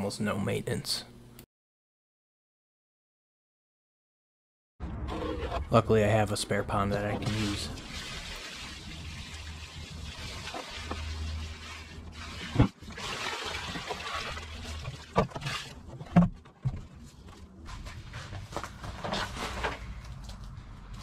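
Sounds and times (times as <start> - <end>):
water pouring and splashing: 6.6 - 15.8.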